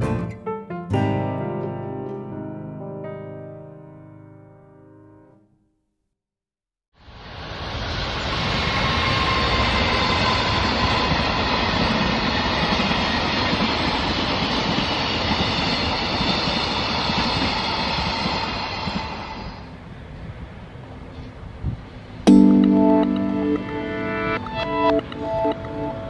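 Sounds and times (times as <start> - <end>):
train passing on tracks: 7.0 - 26.0.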